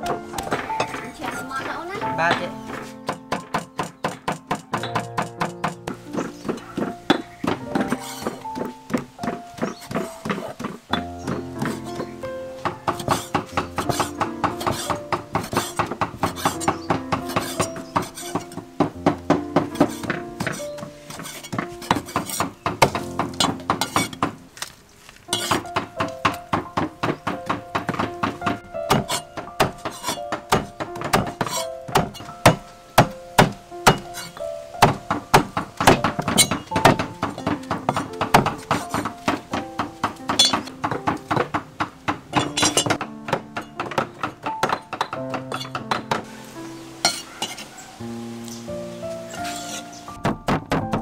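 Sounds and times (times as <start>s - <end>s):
cleaver chopping on wooden block: 0.0s - 24.7s, 25.3s - 46.3s, 49.4s - 51.0s
soft background music: 0.0s - 51.0s.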